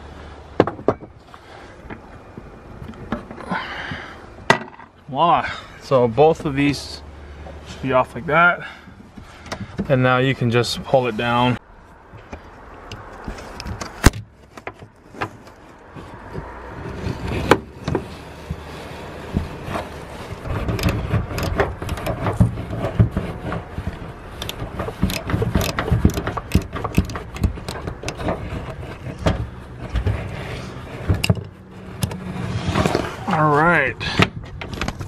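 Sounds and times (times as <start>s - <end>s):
hand rustling and knocking: 12.1s - 33.2s
socket wrench clicking: 24.4s - 28.2s.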